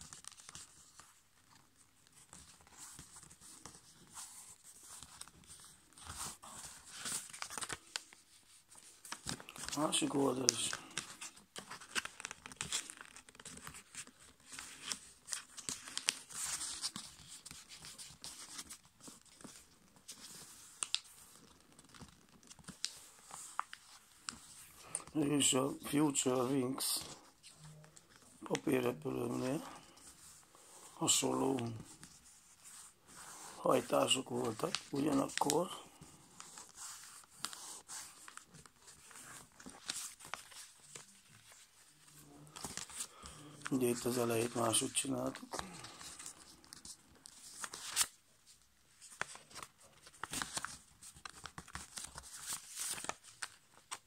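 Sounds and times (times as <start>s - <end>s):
sharp paper crackles: 0.0s - 25.1s, 36.4s - 48.2s, 48.9s - 54.0s
paper rustling and crinkling: 0.0s - 54.0s.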